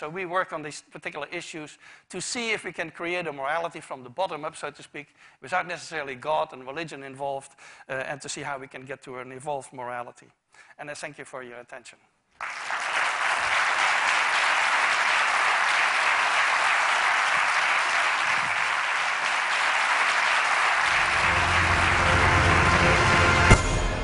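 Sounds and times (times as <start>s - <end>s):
audience applauding: 12.4s - 23.6s.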